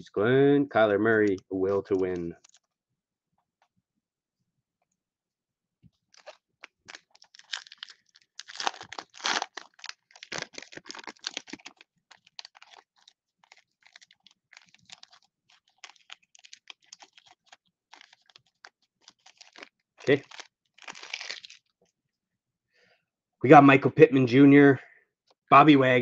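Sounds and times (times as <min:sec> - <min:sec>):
foil wrapper tearing and crinkling: 0:01.9 - 0:02.7, 0:06.0 - 0:21.7.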